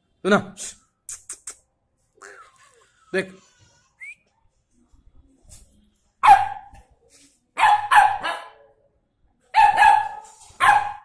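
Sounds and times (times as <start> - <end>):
puppy barking: 6.2 - 6.8, 7.6 - 8.7, 9.5 - 11.0.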